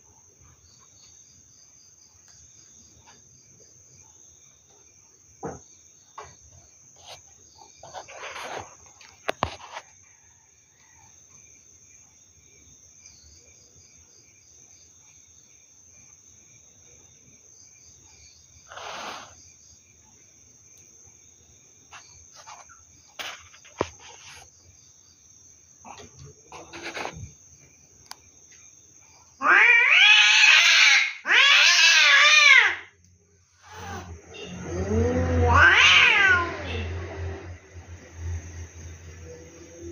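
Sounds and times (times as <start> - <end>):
cat yowling: 29.4 - 32.9, 33.6 - 37.0.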